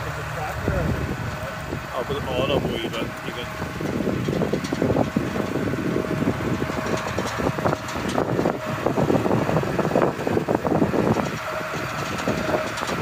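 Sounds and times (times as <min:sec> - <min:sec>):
tractor engine under load: 0:00.0 - 0:13.0
plough knocks and rattles: 0:02.8 - 0:13.0.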